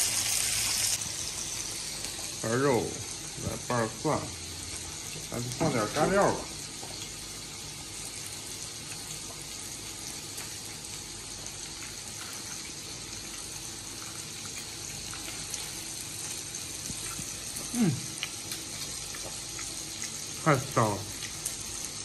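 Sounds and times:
meat sizzling on grill: 0:00.0 - 0:22.0.

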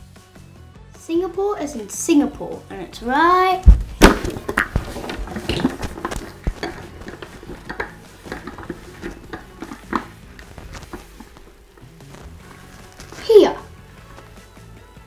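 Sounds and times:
plastic globe handled and turned: 0:03.7 - 0:13.4.

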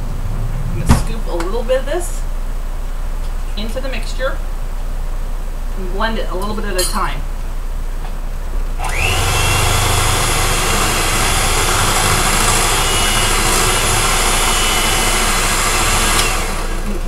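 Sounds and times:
electric mixer whining: 0:08.8 - 0:17.0.

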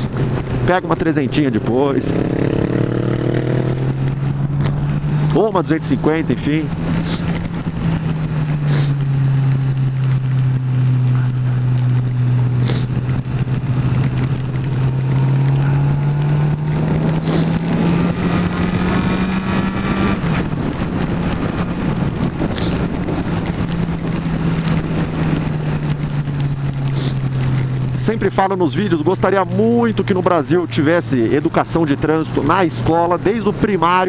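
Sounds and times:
motorcycle engine drone: 0:00.0 - 0:34.0
wind noise: 0:06.0 - 0:28.0.

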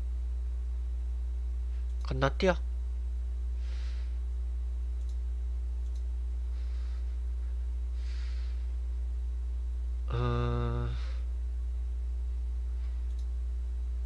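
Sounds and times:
steady low hum: 0:00.0 - 0:14.0
soft breaths: 0:03.5 - 0:04.3, 0:06.4 - 0:08.8, 0:10.4 - 0:11.3
faint clicks: 0:05.0 - 0:06.1, 0:13.0 - 0:13.3.

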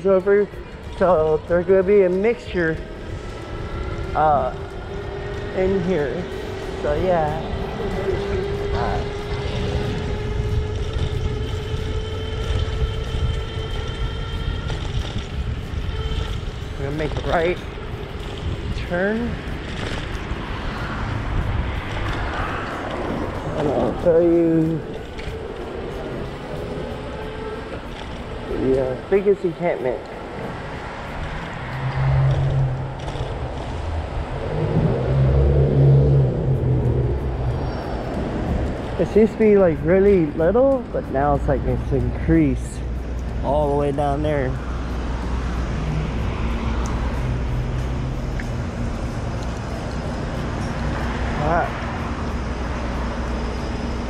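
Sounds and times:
cars driving past: 0:00.0 - 0:54.0
low rumble: 0:00.0 - 0:54.0
road noise: 0:00.0 - 0:54.0
wind on microphone: 0:00.0 - 0:54.0
electric bike motor whining: 0:01.8 - 0:40.7.

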